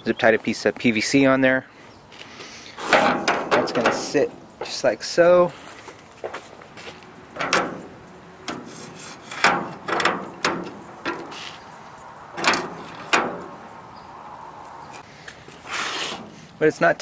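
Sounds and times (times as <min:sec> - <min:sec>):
metal bracket scraping and knocking: 0:02.8 - 0:04.6, 0:07.3 - 0:11.7, 0:12.3 - 0:13.7.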